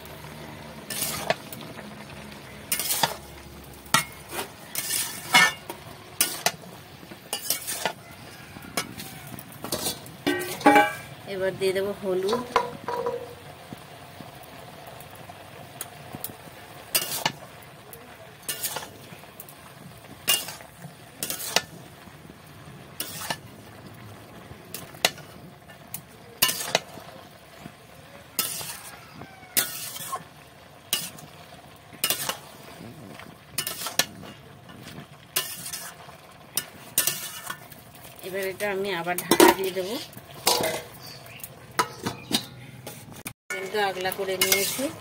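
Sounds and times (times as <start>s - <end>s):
low sizzle: 0.0s - 45.0s
spatula scraping metal pan: 0.7s - 11.2s, 16.9s - 17.4s, 18.4s - 19.2s, 20.2s - 21.8s, 22.9s - 23.5s, 24.7s - 27.7s, 28.4s - 32.9s, 33.5s - 45.0s.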